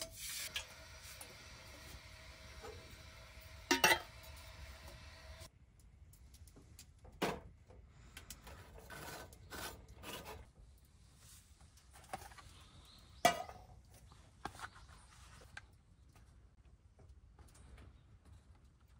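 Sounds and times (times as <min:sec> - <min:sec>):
cookware scraping and rubbing: 0:03.7 - 0:04.2.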